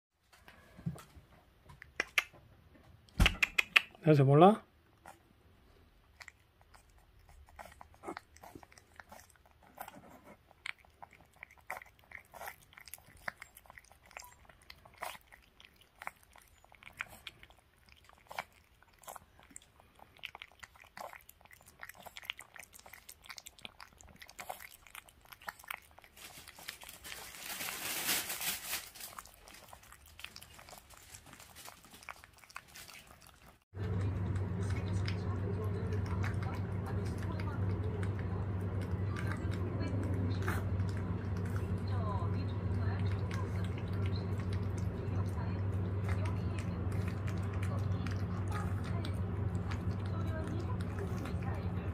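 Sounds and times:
puppy licking and chewing food: 0:00.7 - 0:51.9
steady low hum: 0:33.8 - 0:51.9.

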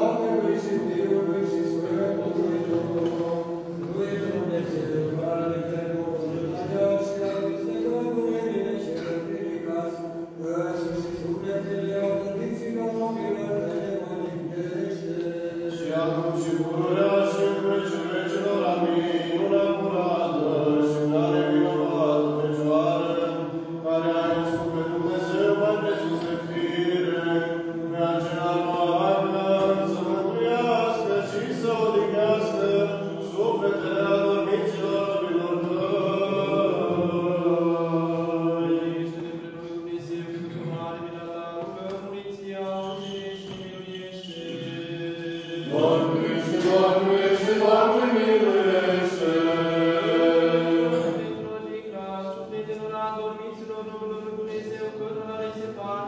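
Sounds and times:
voices singing liturgical chant: 0:00.0 - 0:56.0.

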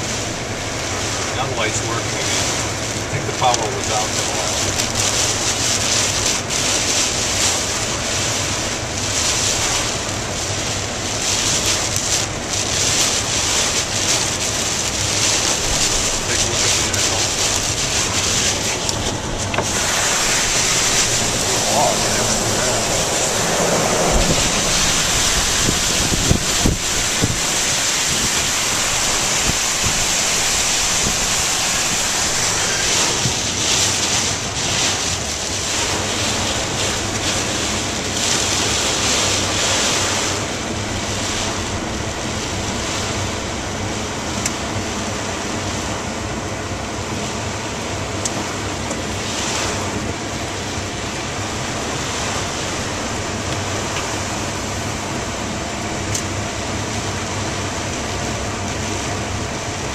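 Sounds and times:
heavy rain: 0:00.0 - 0:59.9
hurricane wind: 0:00.0 - 0:59.9
wind buffeting microphone: 0:04.3 - 0:43.8.

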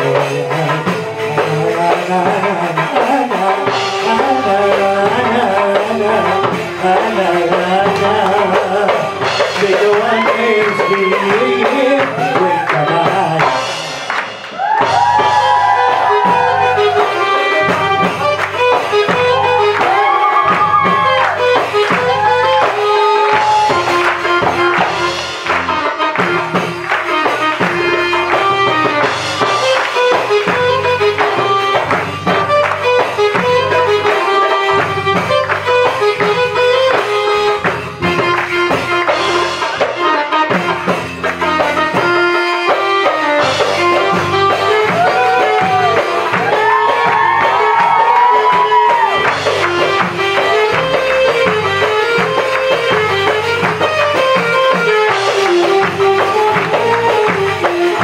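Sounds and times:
man singing ornamented vocals: 0:00.0 - 0:13.7
hand drum rhythm: 0:00.0 - 0:58.0
electronic keyboard: 0:49.1 - 0:58.0.

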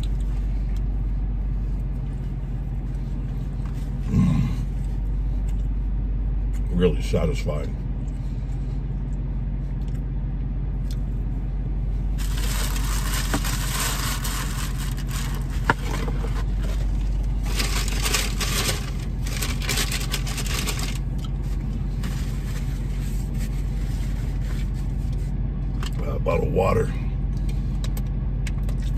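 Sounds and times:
car engine rumbling: 0:00.0 - 0:28.9
paper napkin rustling: 0:12.2 - 0:21.0.

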